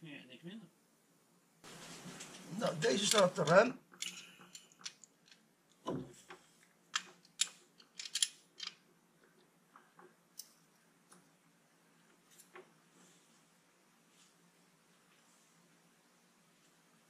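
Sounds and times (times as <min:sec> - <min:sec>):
metallic clicks of spanner: 0:07.0 - 0:08.8.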